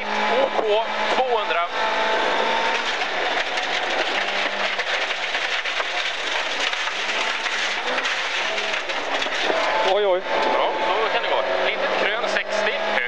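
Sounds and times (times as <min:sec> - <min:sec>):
car engine running: 0:00.0 - 0:13.0
gravel hitting underbody: 0:02.7 - 0:09.7.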